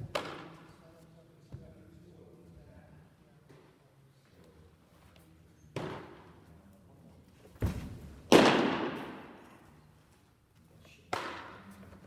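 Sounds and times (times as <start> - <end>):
baseball smacking into leather mitt: 7.6 - 9.4.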